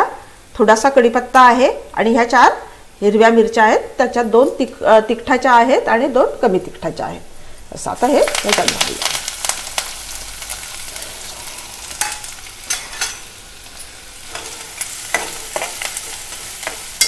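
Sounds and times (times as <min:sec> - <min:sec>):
onions frying in hot oil: 0:00.0 - 0:17.0
steel spoon stirring in pot: 0:12.0 - 0:17.0.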